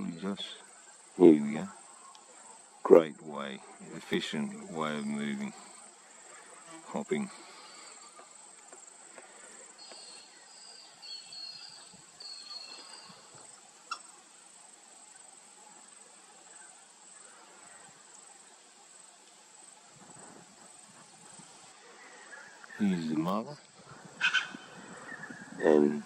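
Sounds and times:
crickets chirring: 0.0s - 26.0s.

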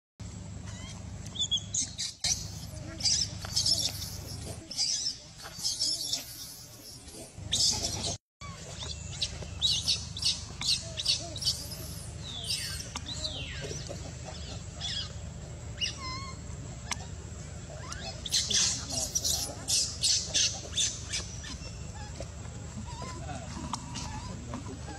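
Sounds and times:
baby monkey screaming: 0.6s - 15.2s, 15.8s - 24.9s.

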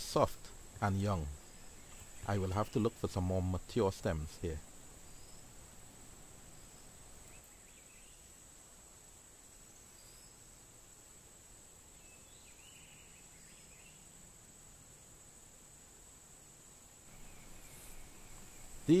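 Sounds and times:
faint bird chirps: 0.0s - 5.7s, 6.3s - 8.5s, 9.6s - 10.7s, 11.9s - 14.3s, 17.1s - 19.0s.

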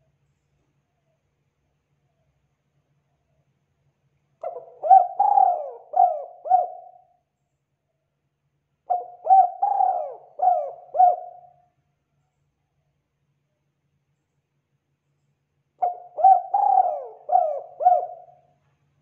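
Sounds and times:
dove cooing: 4.4s - 7.1s, 8.9s - 11.6s, 15.8s - 18.5s.

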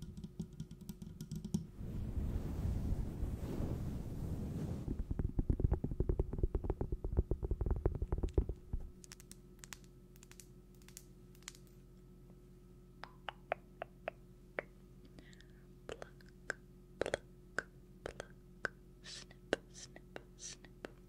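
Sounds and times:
rapid soft tapping: 4.9s - 9.0s.

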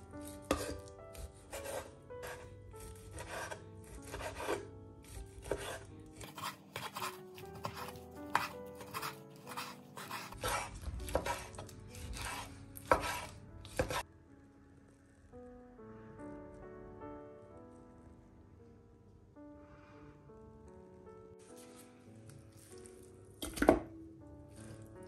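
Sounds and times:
knife chopping on wooden board: 0.2s - 14.0s.

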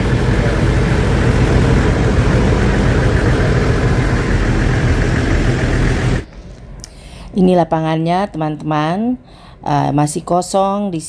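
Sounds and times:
engine idling: 0.0s - 6.3s.

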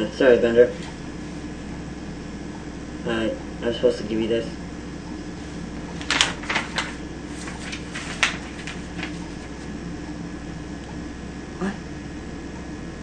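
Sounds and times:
paper sliding across table: 5.4s - 9.7s
paper rustling: 5.4s - 9.8s.

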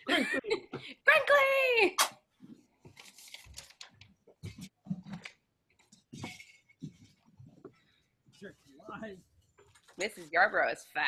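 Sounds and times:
faint rustling and handling: 2.4s - 10.8s.

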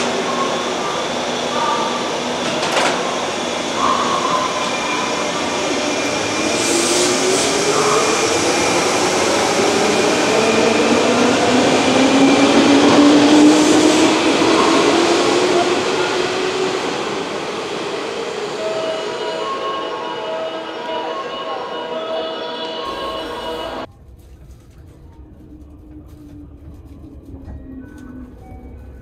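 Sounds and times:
electric train motor whining: 18.3s - 23.9s.

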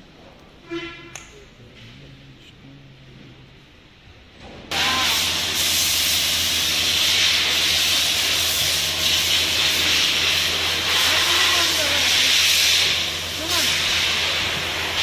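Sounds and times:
loud steady hiss: 4.7s - 15.0s.

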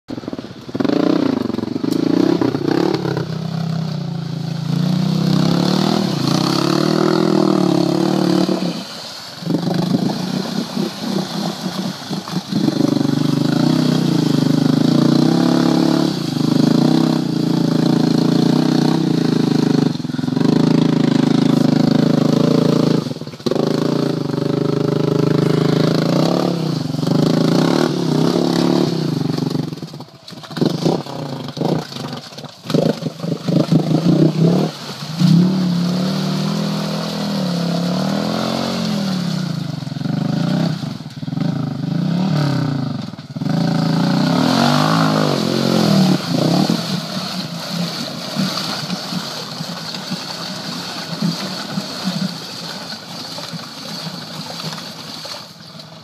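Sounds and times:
atv engine revving: 0.0s - 56.0s.

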